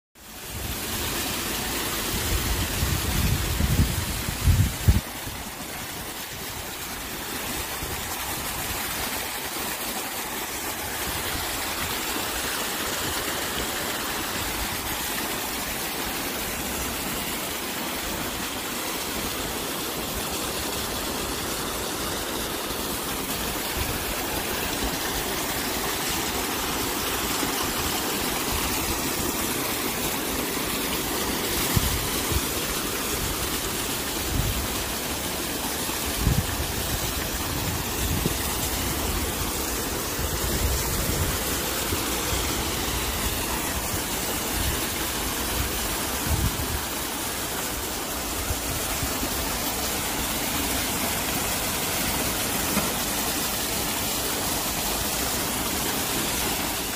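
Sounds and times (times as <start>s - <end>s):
waterfall pouring into pond: 0.2s - 56.9s.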